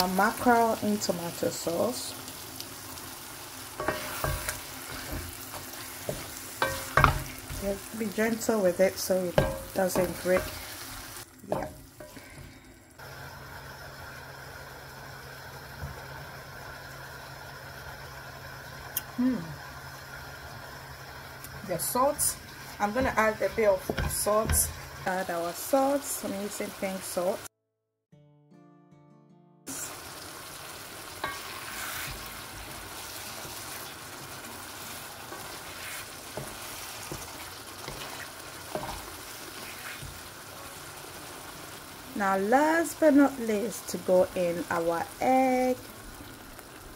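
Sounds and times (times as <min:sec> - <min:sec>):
gas burner flame rumbling: 0:00.0 - 0:27.4
stew sizzling and bubbling: 0:00.0 - 0:27.5, 0:29.7 - 0:46.9
wooden spoon knocking pan: 0:06.0 - 0:07.8, 0:09.4 - 0:10.6, 0:11.5 - 0:12.2, 0:22.8 - 0:24.8.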